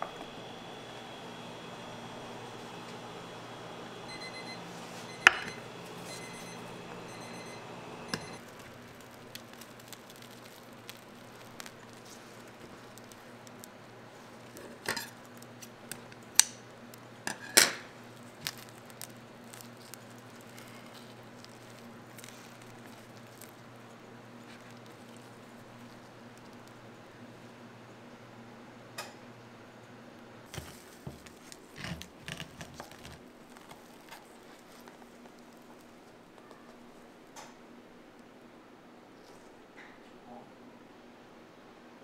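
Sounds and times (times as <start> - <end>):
appliance humming: 0.0 - 37.5
electronic device beeping: 4.1 - 8.4.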